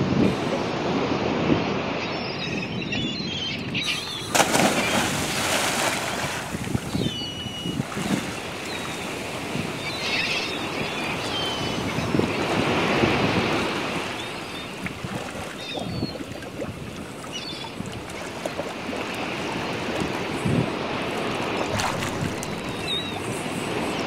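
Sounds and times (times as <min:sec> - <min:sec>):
wind buffeting microphone: 0:00.0 - 0:24.0
lapping waves: 0:03.7 - 0:24.0
churning foaming water: 0:03.9 - 0:24.0
loud splash into water: 0:04.3 - 0:06.6.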